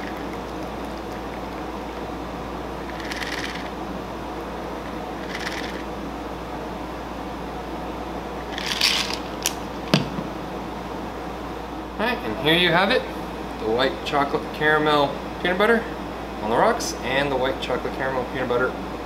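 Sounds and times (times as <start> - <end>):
steady hum: 0.0 - 19.0
cocktail shaker rattling: 2.8 - 3.7, 5.2 - 5.8.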